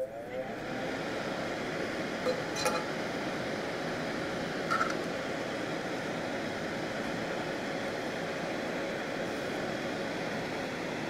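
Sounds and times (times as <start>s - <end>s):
faint hum: 0.0s - 11.0s
fan whooshing hiss: 0.0s - 11.0s.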